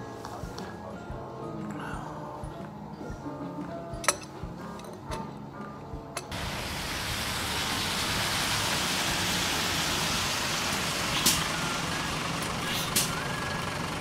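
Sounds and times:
light music: 0.0 - 7.2
bus and traffic on wet street: 6.4 - 14.0
air brakes hissing: 8.9 - 13.9.

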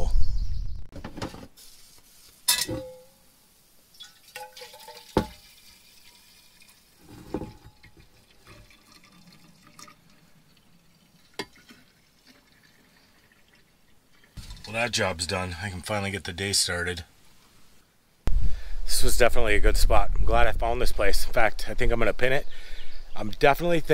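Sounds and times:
liquid trickling: 3.9 - 14.8.

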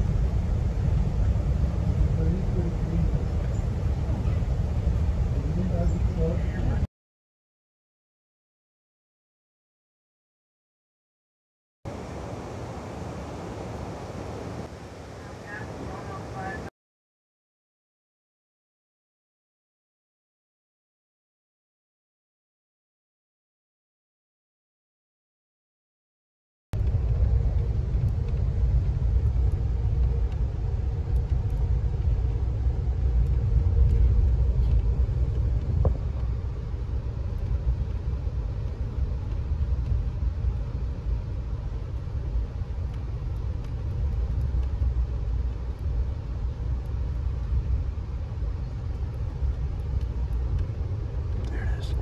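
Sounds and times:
moving vehicle rumble: 0.0 - 6.9, 11.9 - 16.7, 26.8 - 52.0.

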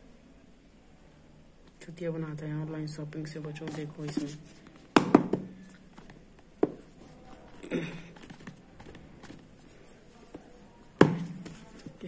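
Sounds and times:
faint taps on cardboard: 5.0 - 6.9.

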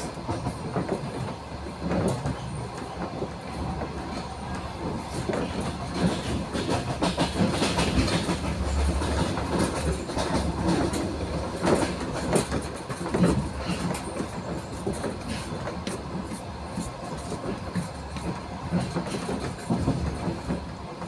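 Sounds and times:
train running noise and rattle: 0.0 - 21.0.

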